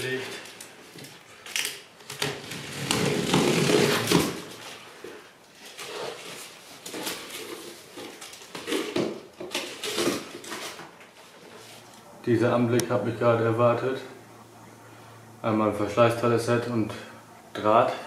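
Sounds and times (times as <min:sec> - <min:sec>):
cardboard scraping and rustling: 0:02.0 - 0:12.0
utility knife cutting cardboard: 0:02.1 - 0:04.6, 0:05.7 - 0:10.9.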